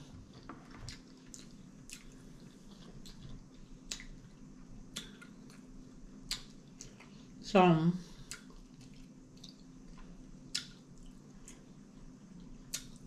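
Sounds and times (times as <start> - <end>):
wet mouth chewing clicks: 4.9 - 5.6, 6.3 - 7.0, 8.3 - 9.7, 10.5 - 11.6, 12.7 - 13.0.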